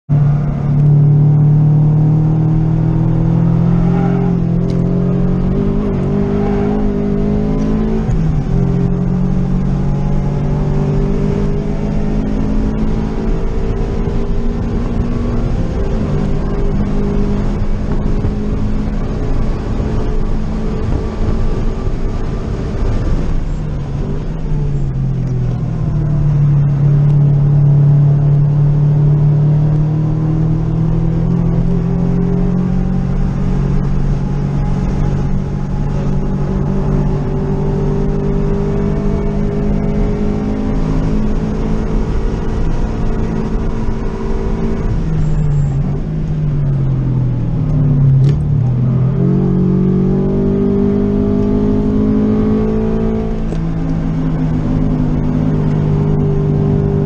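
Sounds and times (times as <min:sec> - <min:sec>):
car engine revving at speed: 0:00.1 - 0:57.0.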